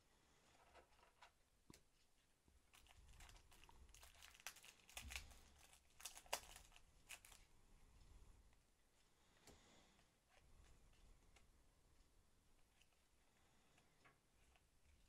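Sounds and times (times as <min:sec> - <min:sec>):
wrapper crinkling and tearing: 0:02.7 - 0:07.5.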